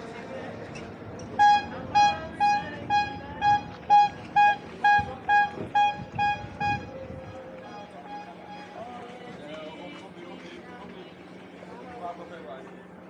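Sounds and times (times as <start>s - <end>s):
horn short toots: 1.4s - 6.9s.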